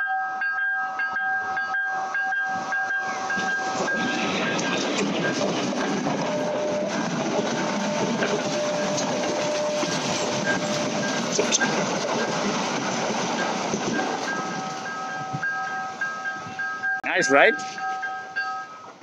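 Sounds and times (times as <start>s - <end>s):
train carriages rolling on rails: 0.9s - 19.0s
train wheel clicks: 2.5s - 16.9s.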